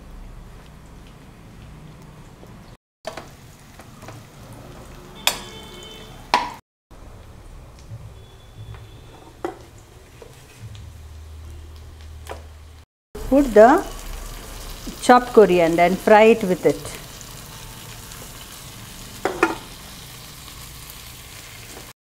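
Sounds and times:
onions sizzling in a pan: 3.1s - 5.4s, 8.2s - 22.0s.

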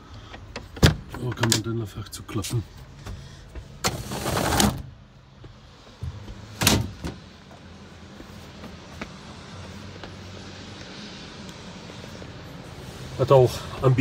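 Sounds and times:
fitting scraping slide: 3.8s - 4.8s.

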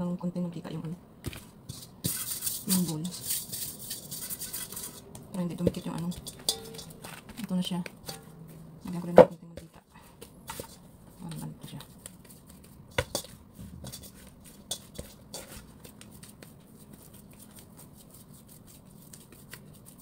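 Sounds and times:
steel bowl knocks and taps: 5.7s - 7.0s.

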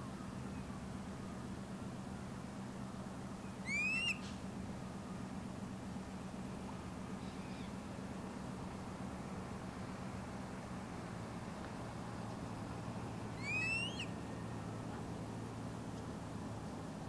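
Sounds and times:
steady low hum: 0.0s - 17.0s
osprey whistled call: 3.4s - 4.4s, 7.2s - 7.8s, 13.3s - 14.5s.

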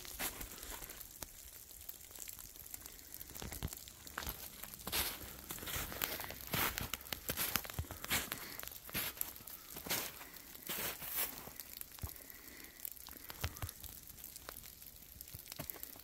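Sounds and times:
footsteps crunching and rustling: 0.0s - 1.1s, 3.4s - 11.6s.

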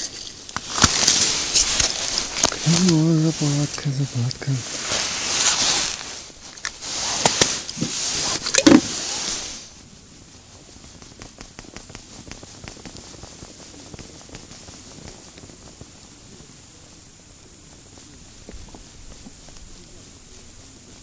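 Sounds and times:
rustling handling noise: 0.0s - 9.8s
faint rapid ticks: 9.8s - 21.0s.

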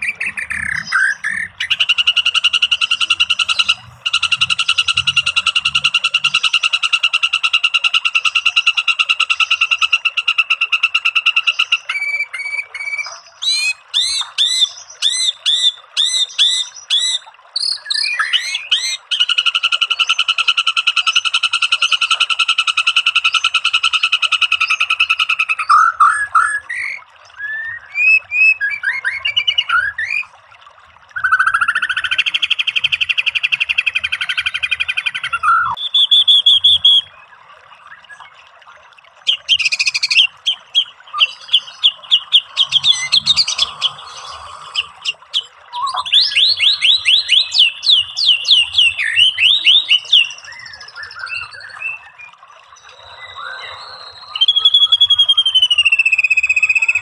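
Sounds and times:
bird song with mimicked phrases: 0.0s - 9.9s, 23.3s - 30.3s, 31.2s - 37.3s, 39.3s - 57.0s.

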